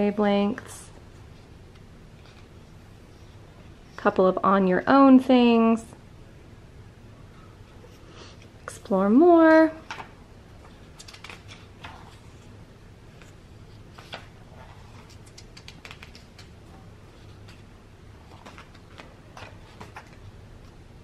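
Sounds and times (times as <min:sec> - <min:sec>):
book pages turning: 0:01.4 - 0:02.8, 0:09.9 - 0:12.5, 0:13.1 - 0:20.8.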